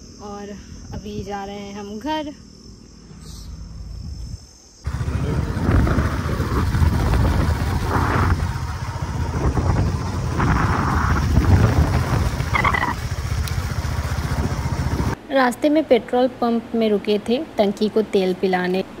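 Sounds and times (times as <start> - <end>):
wind buffeting microphone: 3.9 - 15.2
motorcycle engine running: 4.8 - 15.2.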